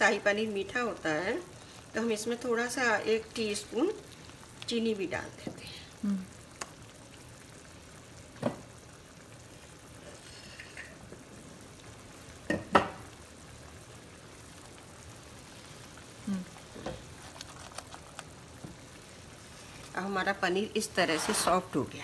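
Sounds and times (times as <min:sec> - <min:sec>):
gravy bubbling in a pan: 0:00.0 - 0:22.0
stirring: 0:16.6 - 0:18.3.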